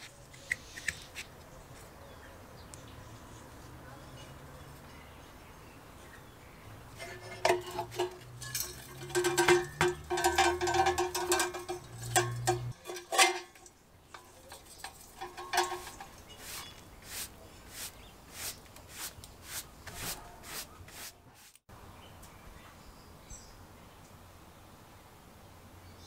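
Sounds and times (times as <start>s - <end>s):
metal pick scraping metal: 7.0s - 17.2s
brush sweeping floor mat: 16.4s - 21.6s.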